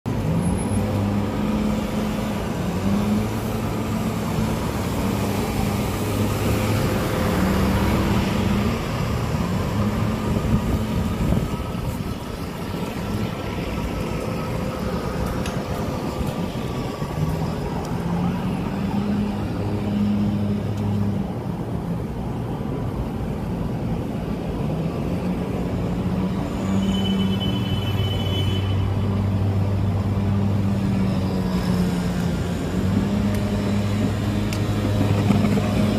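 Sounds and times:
vehicle engines humming: 0:00.1 - 0:35.9.

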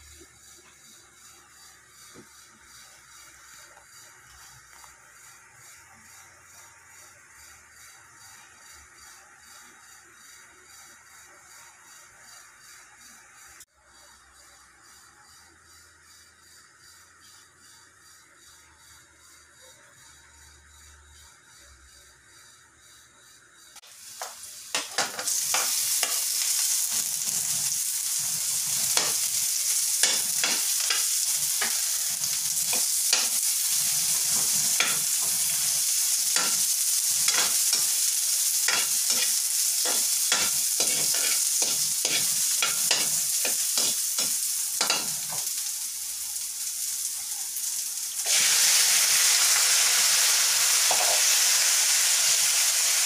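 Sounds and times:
garlic and onion sizzling in oil: 0:00.0 - 0:18.2, 0:18.8 - 0:53.0
utensil scraping a metal wok: 0:24.0 - 0:45.7.

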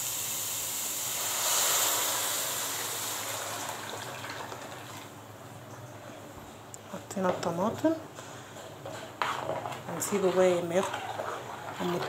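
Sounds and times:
hot oil sizzling in a frying pan: 0:00.0 - 0:04.2.

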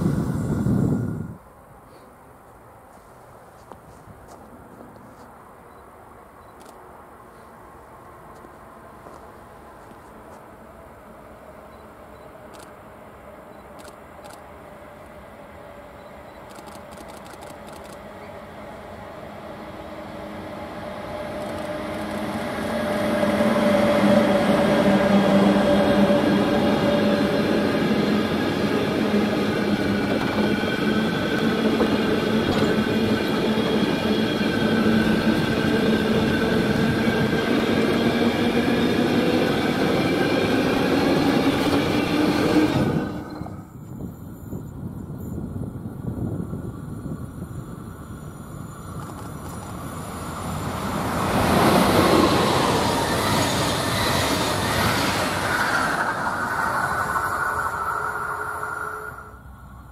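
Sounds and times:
freight train passing: 0:00.0 - 0:03.0, 0:03.6 - 0:59.9.

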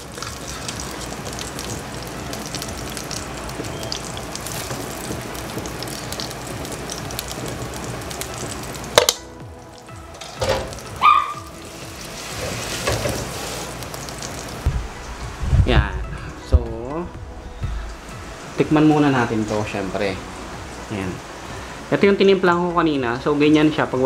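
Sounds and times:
patties sizzling in oil: 0:00.0 - 0:16.3
sharp knocks: 0:14.6 - 0:16.0.

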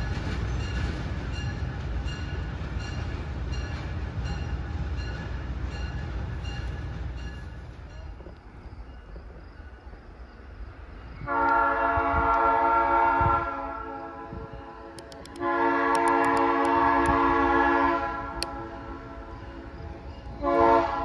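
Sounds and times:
low rumble of passing train: 0:00.0 - 0:21.0
locomotive air horn blasts: 0:11.2 - 0:19.6, 0:20.4 - 0:21.0.

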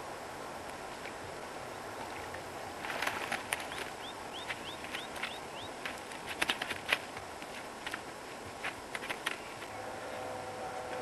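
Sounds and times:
bird chirping: 0:03.6 - 0:05.8.

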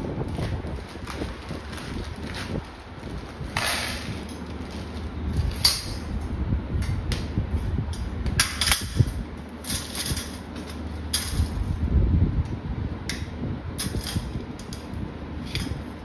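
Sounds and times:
low steady rumble: 0:00.0 - 0:16.0
metal rack parts clinking and scraping: 0:00.3 - 0:06.1, 0:08.4 - 0:11.6, 0:13.8 - 0:15.9.

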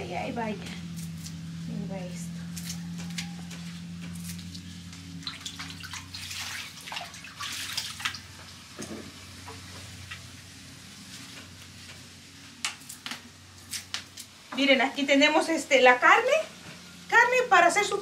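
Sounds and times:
steady low hum: 0:00.0 - 0:18.0
water sloshing in sink: 0:05.2 - 0:08.6
small knocks and rustles: 0:08.3 - 0:10.3.

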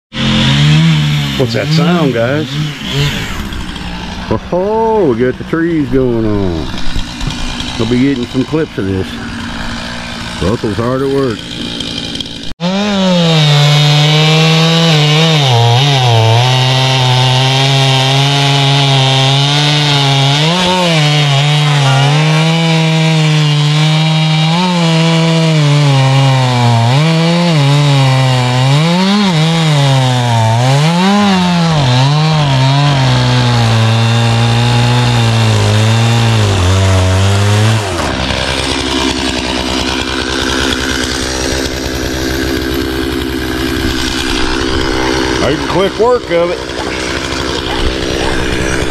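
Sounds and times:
chainsaw cutting logs: 0:00.1 - 0:48.9.

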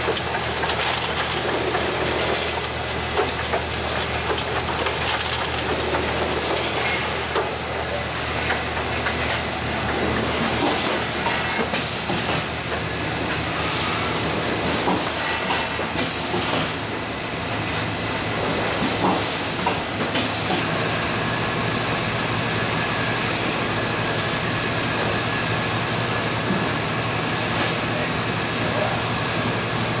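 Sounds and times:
machine clatter: 0:00.0 - 0:13.5, 0:14.2 - 0:16.9
machine hum and hiss: 0:00.0 - 0:30.0.

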